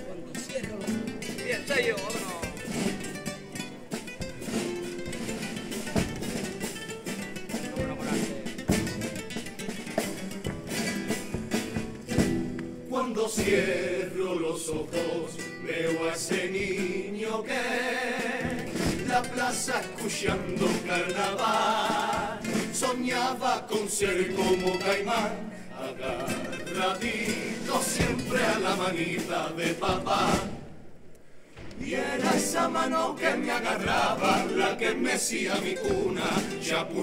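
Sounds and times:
guitars strumming: 0.1 - 30.7, 31.8 - 37.0
chorus singing together: 12.1 - 31.0, 31.6 - 37.0.

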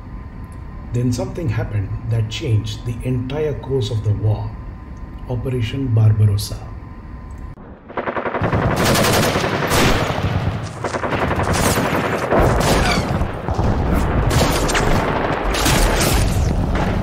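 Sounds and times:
machine-gun fire: 7.6 - 17.0
explosion booms: 12.4 - 17.0.

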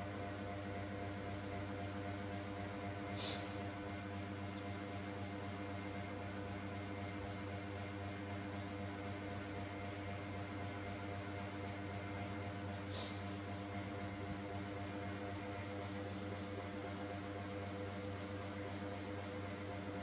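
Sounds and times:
steady mechanical hum: 0.0 - 20.0
even hiss: 3.1 - 3.6
brief high hiss: 3.2 - 3.5.

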